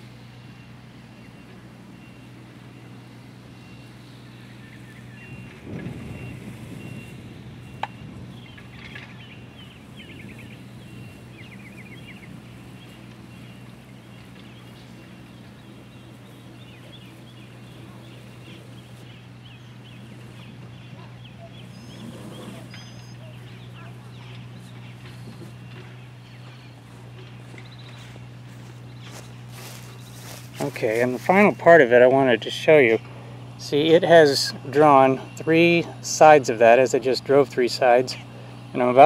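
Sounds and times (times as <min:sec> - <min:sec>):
birds chirping: 0:00.0 - 0:39.0
low engine drone: 0:00.0 - 0:39.0.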